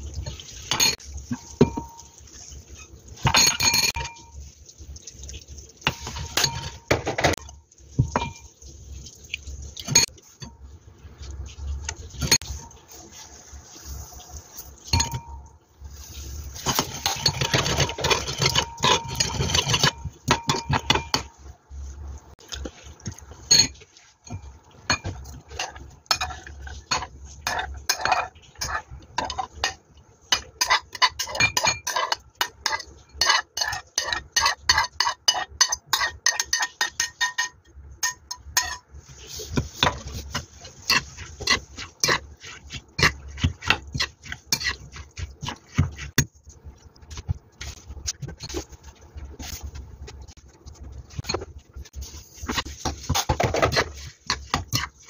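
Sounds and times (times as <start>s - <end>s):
spoon clinking in ceramic bowl: 3.2s - 4.3s, 14.9s - 15.4s, 26.1s - 38.8s.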